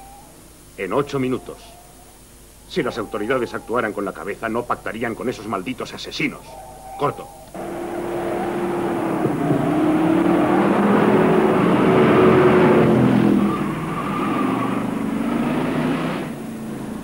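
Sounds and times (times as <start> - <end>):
engine revving: 7.6 - 17.0.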